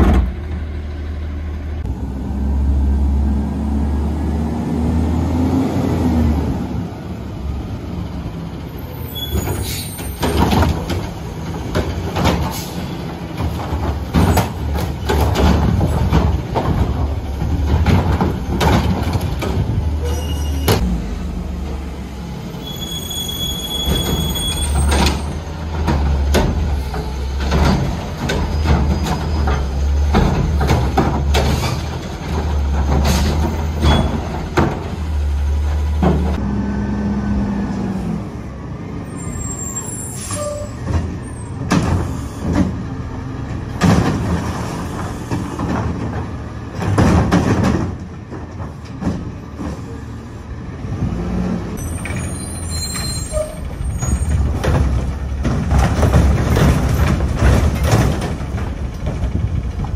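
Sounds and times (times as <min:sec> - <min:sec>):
metal clanks and bangs: 0:00.0 - 0:00.6, 0:09.3 - 0:20.0, 0:23.8 - 0:35.1, 0:43.7 - 0:49.8, 0:51.8 - 0:59.9
high squeal: 0:20.0 - 0:20.8, 0:22.5 - 0:25.0, 0:39.1 - 0:40.8, 0:51.8 - 0:54.4
garbage truck engine running: 0:20.7 - 0:59.9.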